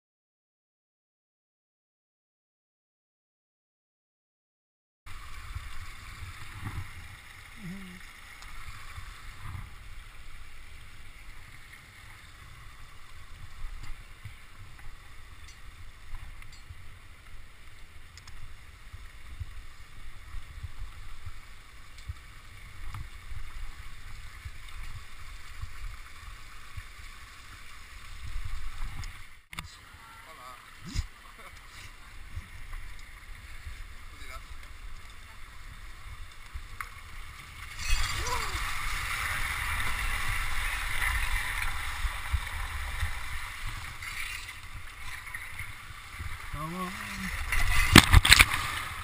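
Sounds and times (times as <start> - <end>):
waterfall rushing: 37.8 - 43.8.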